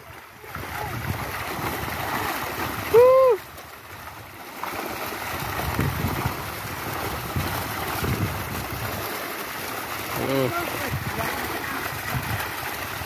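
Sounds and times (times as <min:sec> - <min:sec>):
water splashing and churning: 0:00.0 - 0:13.0.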